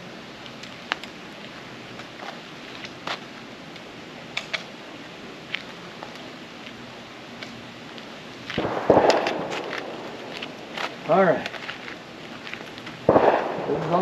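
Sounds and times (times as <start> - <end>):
low outdoor background: 0.0 - 14.0
clothing and belt gear rustling: 7.8 - 13.1.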